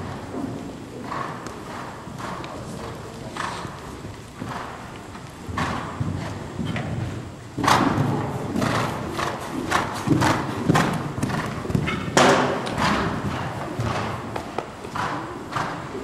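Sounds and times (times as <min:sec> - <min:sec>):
horse hoofbeats on sand: 0:00.0 - 0:16.0
horse landing thud: 0:09.9 - 0:14.1.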